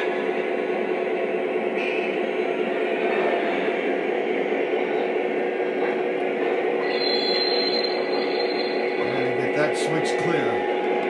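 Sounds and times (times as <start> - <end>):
model train whir and rumble: 0.0 - 11.0
thin steady hum: 0.2 - 11.0.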